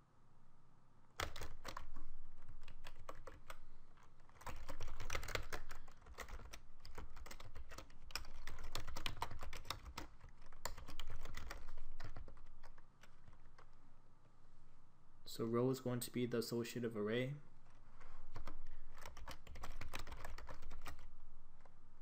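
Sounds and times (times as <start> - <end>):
keyboard typing: 1.2 - 13.8, 17.7 - 21.7.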